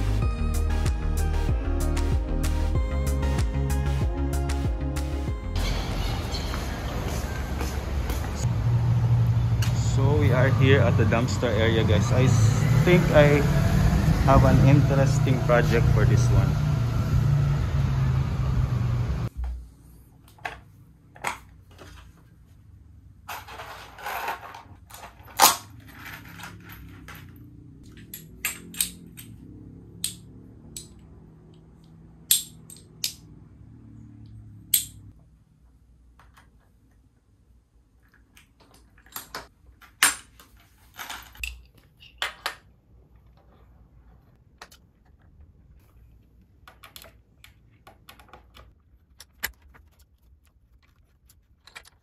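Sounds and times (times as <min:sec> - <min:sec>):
metal hardware clicks and knocks: 0:27.9 - 0:29.4.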